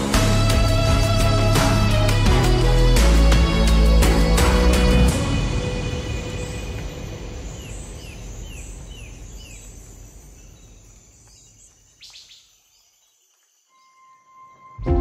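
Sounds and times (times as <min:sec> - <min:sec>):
background music: 0:00.0 - 0:08.1, 0:14.1 - 0:15.0.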